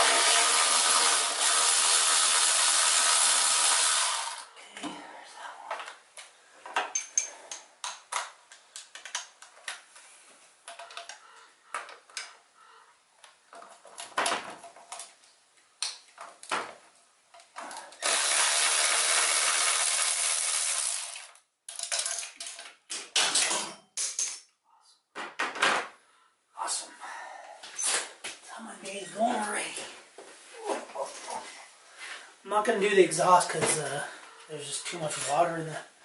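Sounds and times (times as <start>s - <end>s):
metal tool clicks and knocks: 6.8s - 9.3s.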